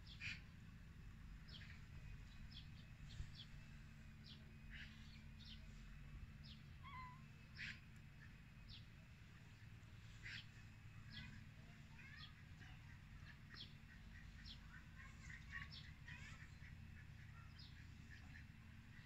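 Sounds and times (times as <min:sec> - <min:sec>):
low background rumble: 0:00.0 - 0:19.0
birds chirping: 0:01.4 - 0:19.0.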